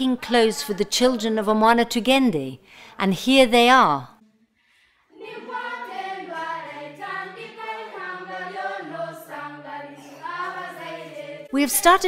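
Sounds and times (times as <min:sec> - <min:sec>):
choir singing: 0:00.0 - 0:01.8, 0:05.1 - 0:12.0.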